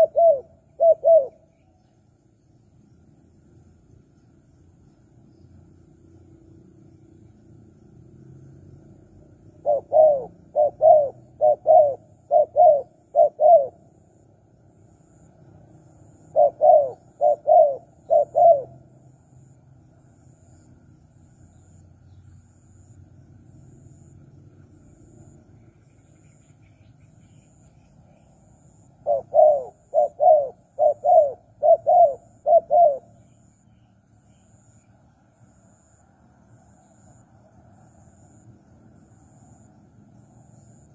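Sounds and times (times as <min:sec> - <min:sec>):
dove cooing: 0:00.0 - 0:01.5, 0:09.6 - 0:13.9, 0:16.3 - 0:18.9, 0:29.0 - 0:33.3.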